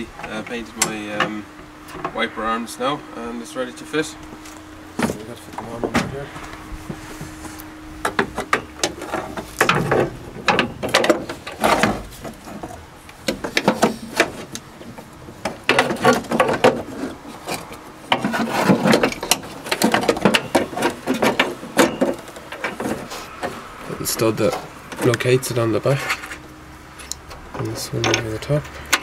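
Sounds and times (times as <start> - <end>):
metal parts clicking and rattling: 8.2 - 23.5.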